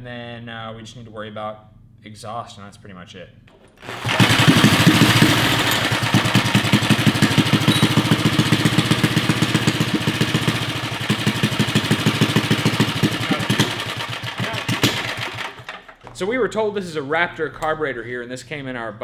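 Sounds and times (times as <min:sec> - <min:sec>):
engine chugging: 0:03.9 - 0:15.8.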